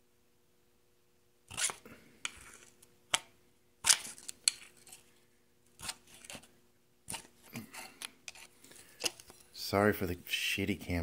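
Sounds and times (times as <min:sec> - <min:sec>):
screwdriver scraping metal: 0:01.5 - 0:02.8, 0:05.8 - 0:06.5, 0:07.1 - 0:09.4.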